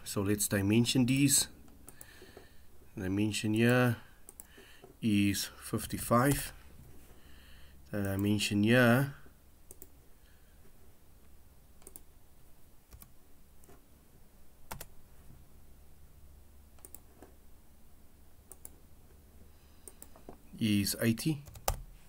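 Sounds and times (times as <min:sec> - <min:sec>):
computer mouse clicks: 0:04.2 - 0:04.6, 0:09.7 - 0:10.0, 0:11.8 - 0:12.1, 0:16.8 - 0:17.3, 0:18.5 - 0:18.8, 0:19.8 - 0:20.4.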